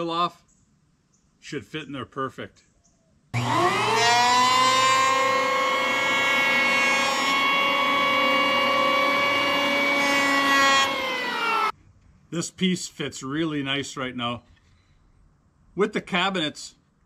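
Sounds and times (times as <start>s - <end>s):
electric hand planer whining: 3.4s - 11.7s.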